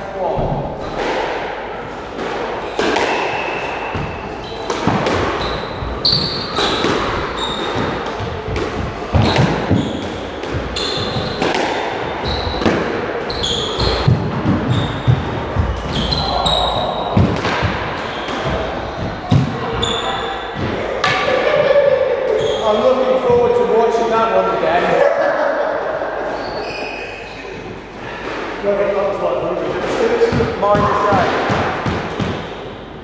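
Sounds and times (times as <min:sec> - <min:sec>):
squash ball hitting rackets and walls: 0:00.4 - 0:23.6, 0:27.4 - 0:33.0
trainers squeaking on wooden floor: 0:09.2 - 0:11.5, 0:12.1 - 0:17.2.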